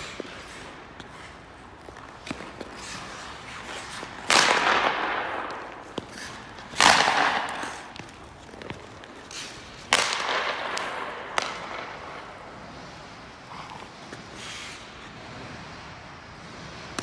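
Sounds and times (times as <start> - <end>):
stick and puck clicks: 0.0 - 15.0
hockey shot cracks echoing: 4.2 - 8.2, 9.3 - 12.5.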